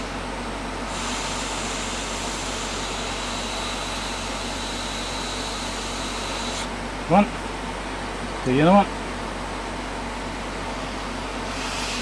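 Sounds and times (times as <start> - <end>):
hot air blower hissing: 0.0 - 7.2, 10.5 - 12.0.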